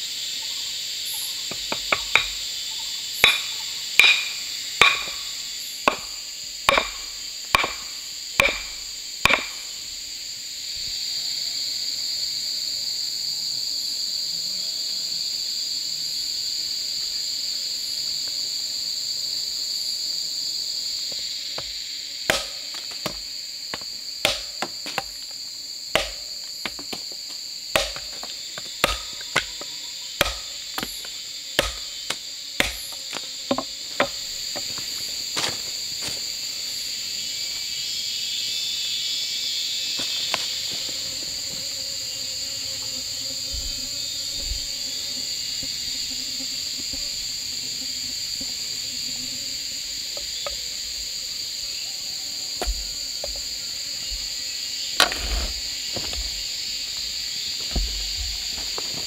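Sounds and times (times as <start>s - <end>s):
crickets and insects shrilling: 0.0s - 59.0s
axe chopping wood: 1.5s - 2.4s, 3.2s - 5.3s, 5.9s - 9.7s, 22.3s - 25.3s, 25.9s - 34.8s, 52.6s - 53.4s, 55.0s - 56.3s.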